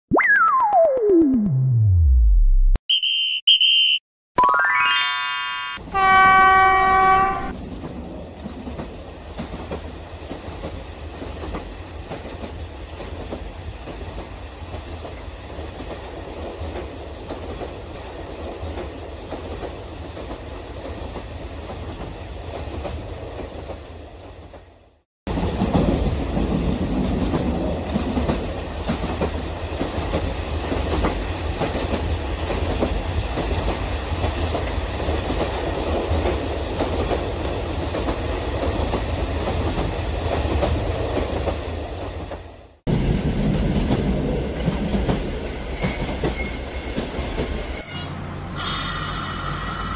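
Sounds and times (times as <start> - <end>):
train horn blast: 5.8 - 7.6.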